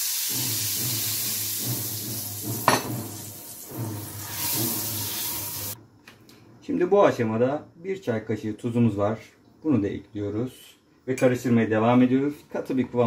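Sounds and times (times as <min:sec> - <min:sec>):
sizzling in a frying pan: 0:00.0 - 0:05.8.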